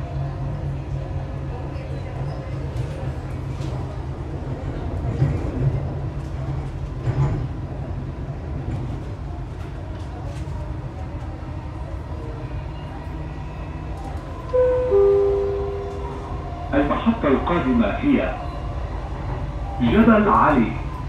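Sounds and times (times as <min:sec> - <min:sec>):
train rumble: 0:00.0 - 0:21.0
two-note falling chime: 0:14.6 - 0:16.3.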